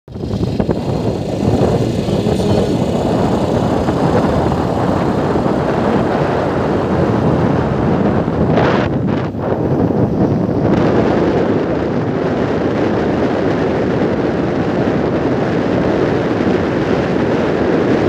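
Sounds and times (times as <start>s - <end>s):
vehicle rushing noise: 0.1s - 12.2s
wind buffeting microphone: 0.1s - 18.0s.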